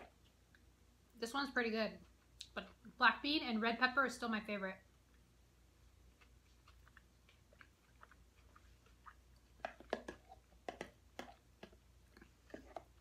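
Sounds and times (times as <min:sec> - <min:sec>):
faint chewing: 0:01.9 - 0:03.0, 0:05.0 - 0:13.0.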